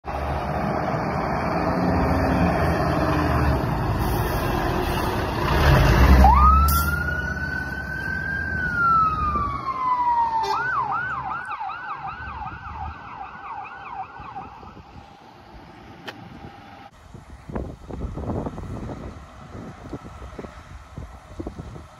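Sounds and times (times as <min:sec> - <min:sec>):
fire engine rumbling: 0:00.0 - 0:21.9
fire engine siren wailing and yelping: 0:05.5 - 0:15.0.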